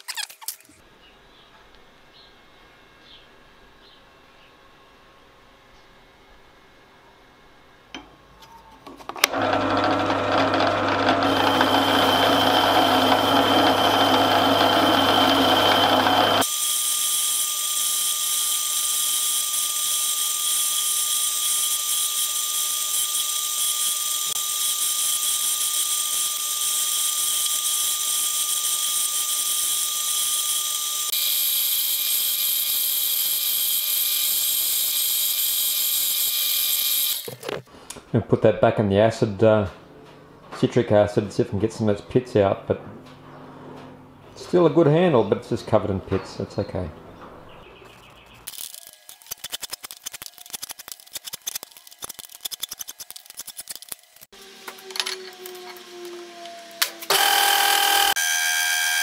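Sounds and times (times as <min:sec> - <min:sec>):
drill press spinning wire brush: 0:09.2 - 0:37.6, 0:48.5 - 0:59.0.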